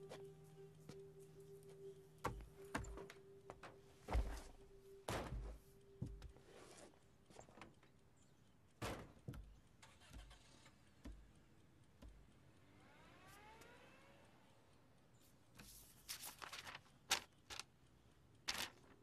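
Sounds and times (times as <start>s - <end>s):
faint rising tones: 12.2s - 15.3s
papers handled on a table: 15.6s - 17.7s, 18.5s - 19.0s.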